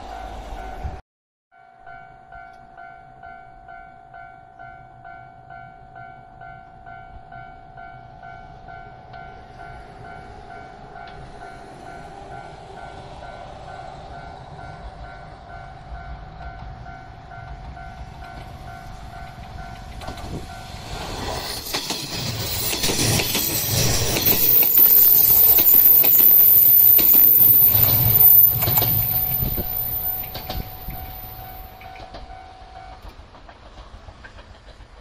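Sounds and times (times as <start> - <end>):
high train whine: 0.0 - 1.0, 1.8 - 35.0
train wheels clattering: 17.4 - 35.0
level crossing alarm ringing: 23.3 - 32.4.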